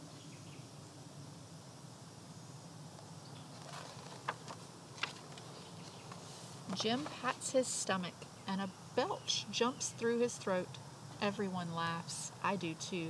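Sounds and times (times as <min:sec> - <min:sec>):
faint background noise: 0:00.0 - 0:13.0
book page turning: 0:03.4 - 0:07.2.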